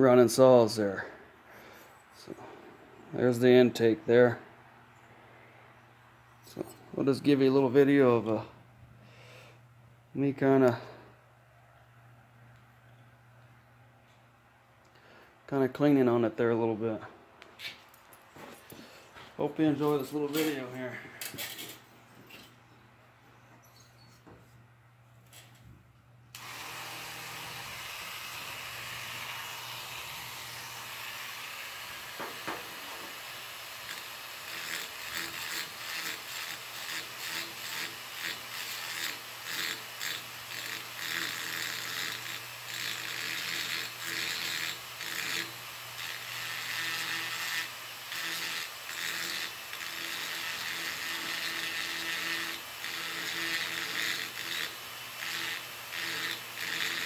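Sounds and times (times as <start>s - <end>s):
rotary tool grinding metal: 19.8s - 22.5s, 26.4s - 57.0s.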